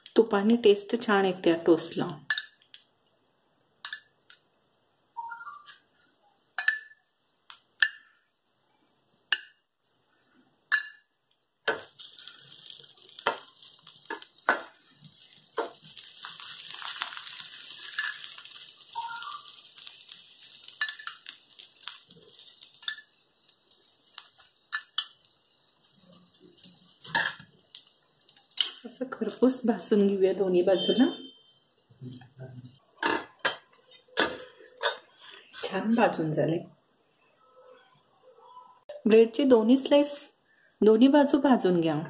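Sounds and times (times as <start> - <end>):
bread sizzling on griddle: 1.7 - 36.1
utensils clinking on iron griddle: 3.8 - 4.1, 6.6 - 8.2, 10.7 - 29.0, 33.0 - 35.1.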